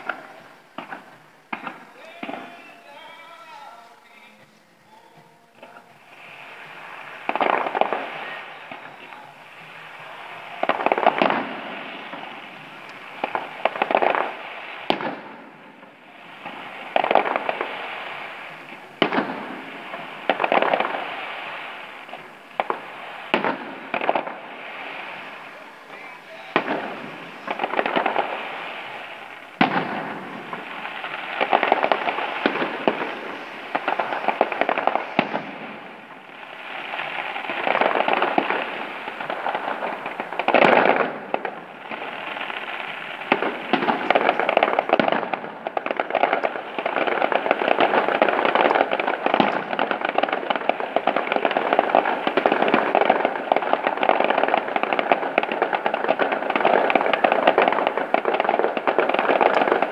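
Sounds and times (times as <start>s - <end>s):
fireworks bangs: 0.0s - 59.9s
fireworks crackling: 0.0s - 59.9s.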